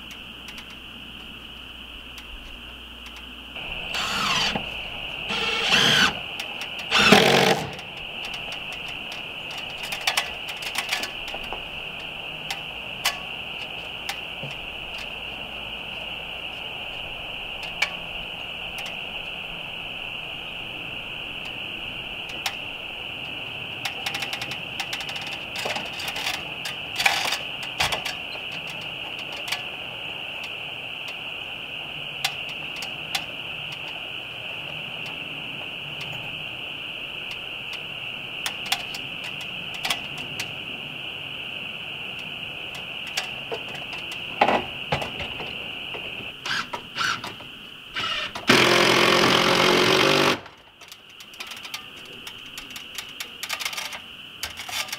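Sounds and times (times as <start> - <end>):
steady high whine: 0.0 - 53.4
cordless drill-driver bursts: 3.8 - 4.7, 5.3 - 6.2, 6.9 - 7.8, 46.5 - 47.2, 48.0 - 50.4.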